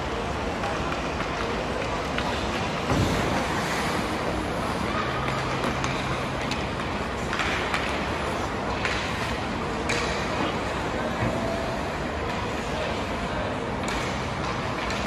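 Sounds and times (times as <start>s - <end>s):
faint voices: 0.0s - 15.0s
skates scraping on ice: 0.2s - 10.9s
hockey sticks clacking: 0.6s - 11.4s, 12.2s - 15.0s.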